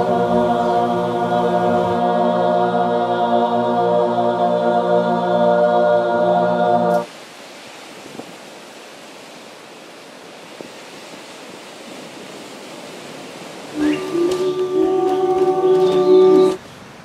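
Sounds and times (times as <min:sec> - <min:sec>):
voices holding sustained tones: 0:00.0 - 0:07.1, 0:13.7 - 0:16.6
ocean surf breaking on rocks: 0:00.0 - 0:17.0.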